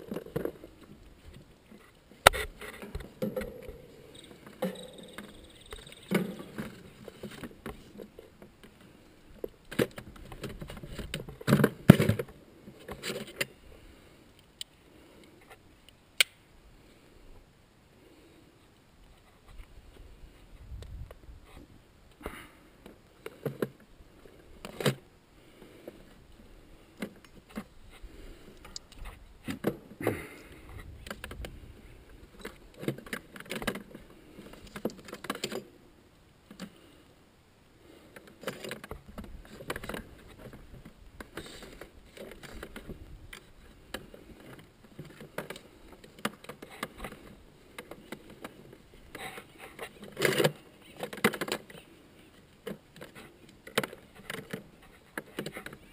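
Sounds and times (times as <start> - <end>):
tools clinking and rattling: 3.3 - 6.8.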